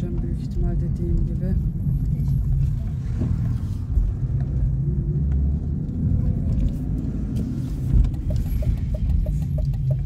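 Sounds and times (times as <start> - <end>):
engine and road rumble: 0.0 - 10.0
light regular ticking: 8.0 - 10.0.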